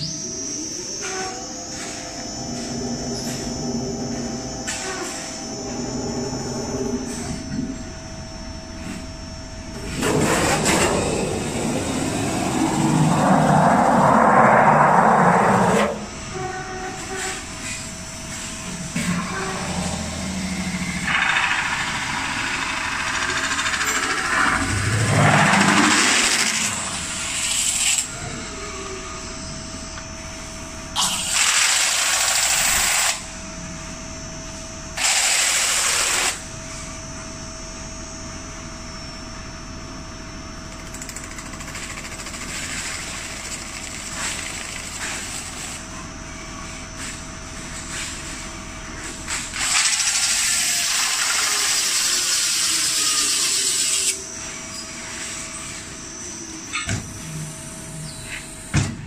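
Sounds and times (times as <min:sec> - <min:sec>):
metal spinning machine whine: 0:00.0 - 0:58.8.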